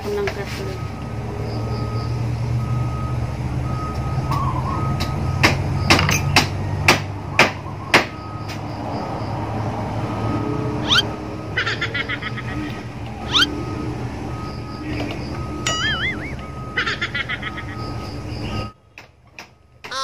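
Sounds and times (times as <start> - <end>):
vehicle reversing beeper: 0.0 - 18.8
low engine rumble: 10.2 - 20.0.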